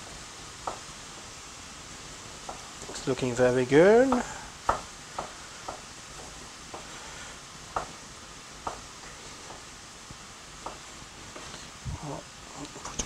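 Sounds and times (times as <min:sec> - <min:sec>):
vegetables sizzling in pan: 0:00.0 - 0:13.0.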